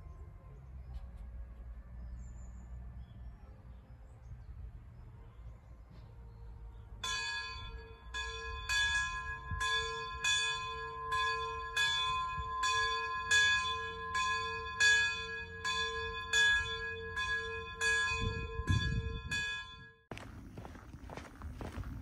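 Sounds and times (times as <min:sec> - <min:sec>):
bell ringing: 0:07.0 - 0:20.0.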